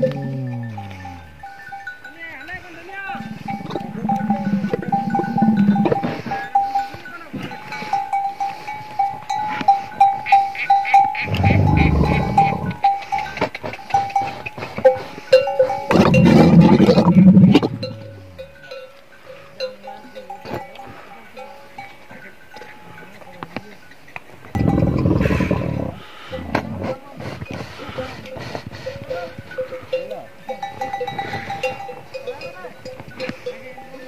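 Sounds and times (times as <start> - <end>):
camel deep rumbling calls: 0.0 - 1.7, 3.2 - 6.2, 10.2 - 13.4, 15.9 - 18.4, 24.6 - 27.0
camel bell clanking: 0.0 - 34.0.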